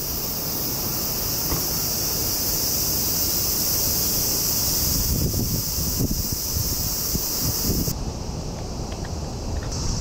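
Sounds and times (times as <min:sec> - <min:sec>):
insects chirring: 0:00.0 - 0:10.0
wind on microphone: 0:04.4 - 0:08.6.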